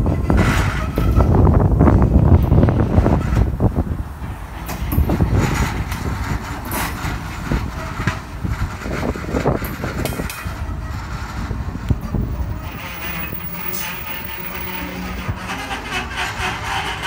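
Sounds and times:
train wheels rumbling on rails: 0.0 - 17.0
high wheel squeals: 4.5 - 17.0.

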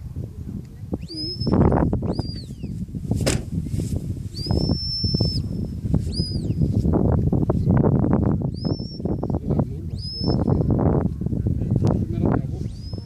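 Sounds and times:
shepherd's whistle: 4.4 - 5.5.

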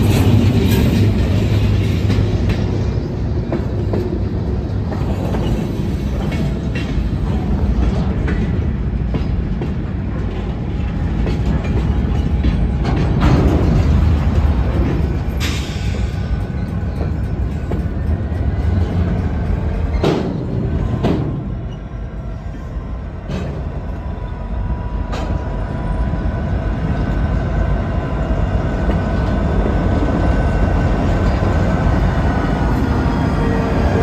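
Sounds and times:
train wheels knocking: 0.0 - 21.7
diesel locomotive engines: 0.0 - 34.0
freight train rumbling past: 0.0 - 34.0.

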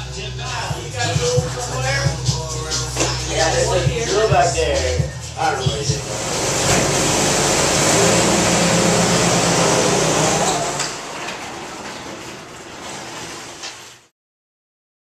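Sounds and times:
vehicle engine running: 0.0 - 10.8
garage door rumbling on track: 5.7 - 14.1
garage door opener clicks: 6.0 - 14.0.

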